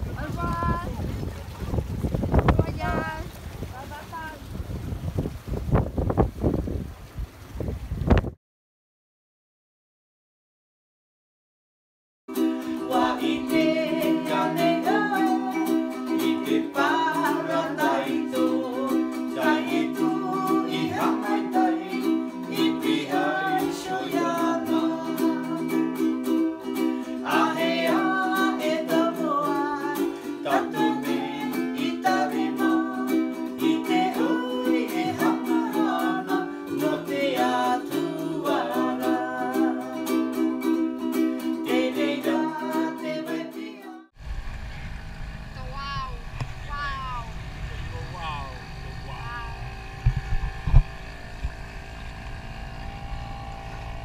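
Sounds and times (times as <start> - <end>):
ukuleles strummed: 12.3 - 44.0, 49.7 - 54.0
person singing: 12.6 - 40.4, 41.4 - 44.1.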